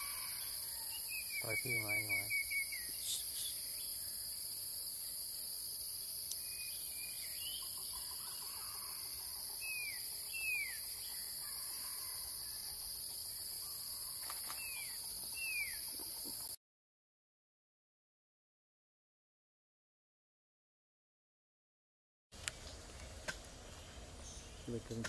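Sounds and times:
bird whistling: 0.0s - 3.9s
high-pitched insect drone: 0.0s - 16.6s.

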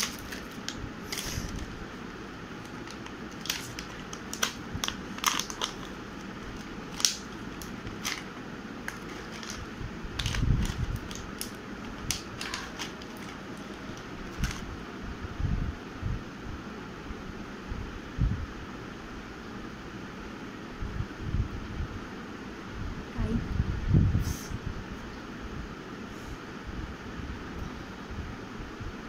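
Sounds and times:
plastic packaging crinkling: 0.0s - 14.7s.

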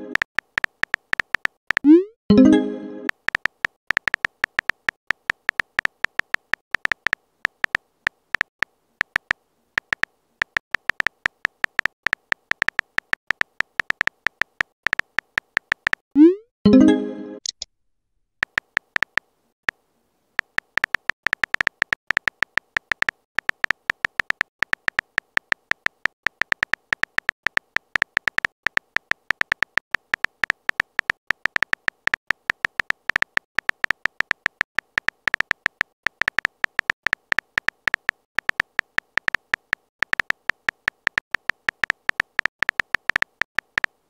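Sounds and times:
message sent sound: 0.0s - 0.2s, 1.8s - 3.2s, 16.2s - 17.6s
simulated keyboard typing clicks: 0.0s - 16.4s, 18.4s - 19.8s, 20.4s - 44.0s.

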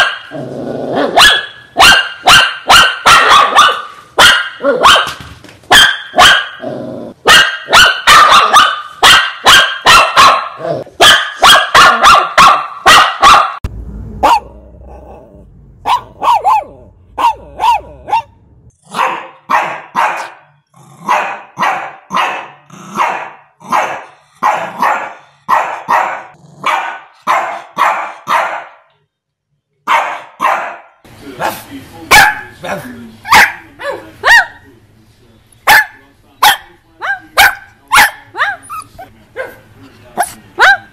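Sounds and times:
dog barking: 0.0s - 0.4s, 1.0s - 6.6s, 7.2s - 13.6s, 14.2s - 14.6s, 15.8s - 28.9s, 29.8s - 31.0s, 32.1s - 32.6s, 33.3s - 34.6s, 35.7s - 39.6s, 40.2s - 40.9s
low rumble: 13.6s - 16.2s, 16.8s - 18.7s.

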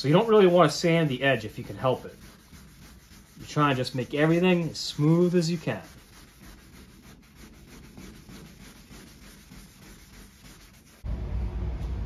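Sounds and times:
hand sanding strokes: 0.0s - 11.1s
steady low rumble: 11.0s - 12.0s.

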